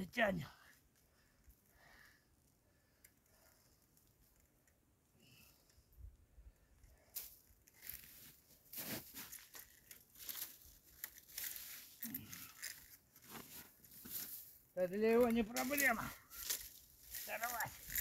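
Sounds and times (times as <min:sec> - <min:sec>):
hands rustling and crunching on snow: 0:07.2 - 0:09.6, 0:13.2 - 0:14.6, 0:15.2 - 0:18.0.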